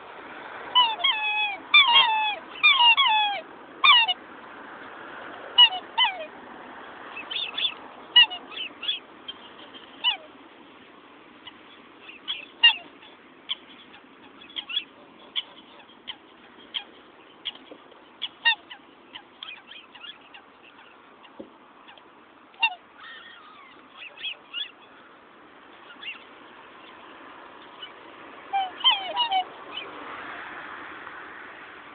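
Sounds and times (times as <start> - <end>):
swans calling: 0.6 - 4.2, 5.5 - 6.4, 7.0 - 10.6, 11.3 - 30.5.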